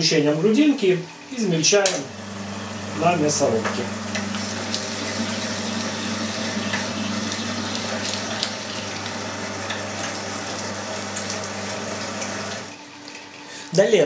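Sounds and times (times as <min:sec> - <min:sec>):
electric meat grinder running: 0:02.0 - 0:12.8.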